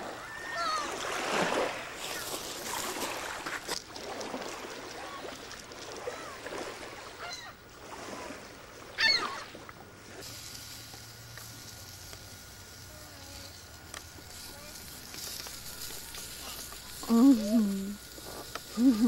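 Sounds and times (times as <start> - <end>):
faint thin hum: 0.0 - 19.0
gulls squawking: 0.1 - 1.1, 6.0 - 7.6, 8.9 - 9.6.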